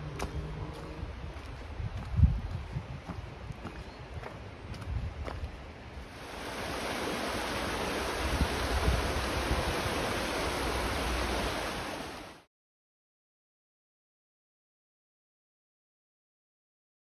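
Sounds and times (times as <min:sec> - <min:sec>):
river rushing: 0:05.9 - 0:12.5.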